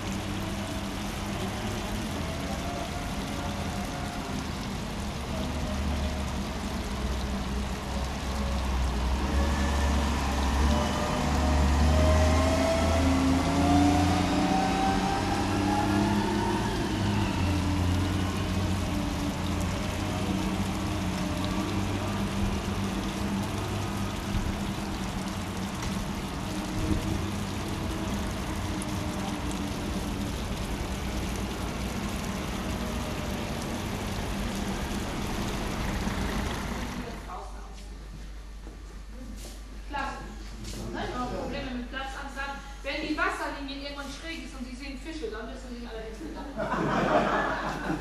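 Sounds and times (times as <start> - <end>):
vehicle engine accelerating: 4.8 - 37.3.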